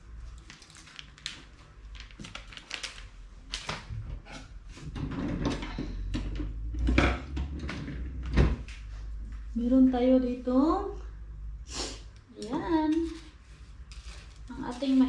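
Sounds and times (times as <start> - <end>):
rustling: 12.9 - 15.0.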